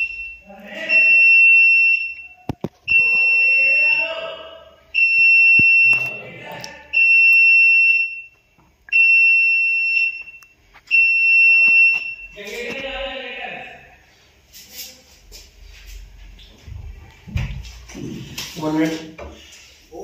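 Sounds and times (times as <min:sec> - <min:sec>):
medical alarm beeping: 0:00.0 - 0:12.8.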